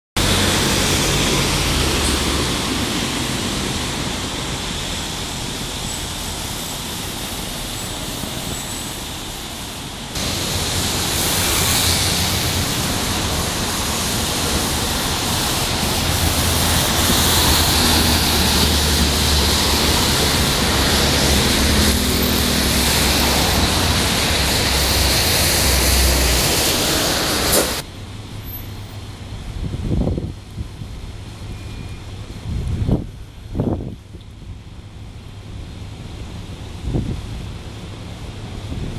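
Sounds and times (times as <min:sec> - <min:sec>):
cars passing on wet road: 0:00.2 - 0:38.9
tram going by: 0:00.2 - 0:38.9
wind noise on microphone: 0:29.2 - 0:38.9.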